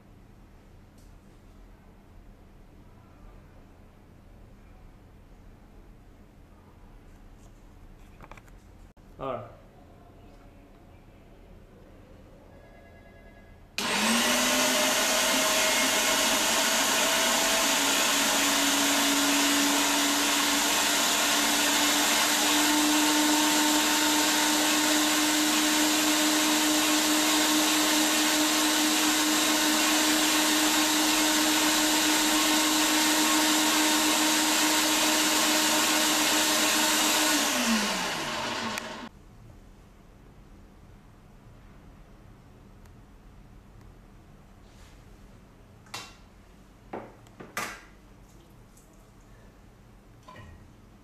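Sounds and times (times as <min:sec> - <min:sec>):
electric meat grinder motor whirring: 0:13.8 - 0:39.1.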